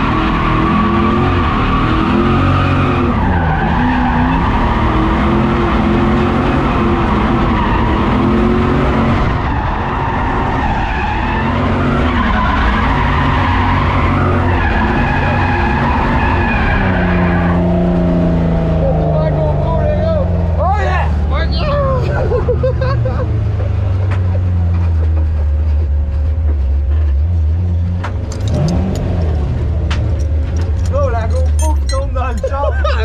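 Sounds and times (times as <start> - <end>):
car engine revving hard: 0.0 - 23.6, 28.4 - 29.9
tyres screeching: 30.0 - 33.0.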